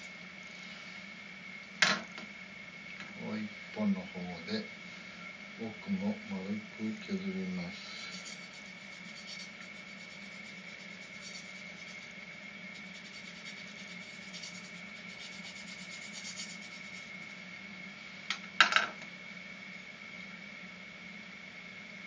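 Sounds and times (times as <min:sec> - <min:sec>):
high whine and hum: 0:00.0 - 0:22.0
tool scraping bamboo: 0:07.9 - 0:12.1, 0:12.8 - 0:17.1.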